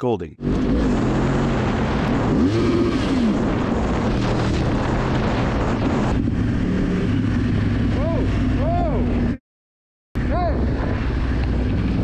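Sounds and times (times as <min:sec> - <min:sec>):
wind noise: 0:00.4 - 0:09.3, 0:10.2 - 0:12.0
motorcycle engine revving: 0:00.4 - 0:09.4.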